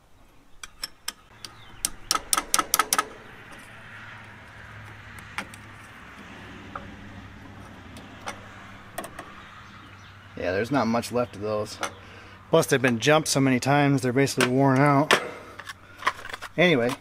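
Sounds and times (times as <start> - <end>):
metal tools clicking on bolt: 0.6 - 9.3, 11.8 - 12.0.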